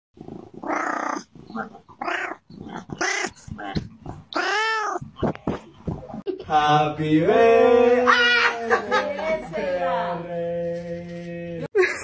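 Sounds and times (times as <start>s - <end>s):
cat meowing: 4.3s - 5.0s.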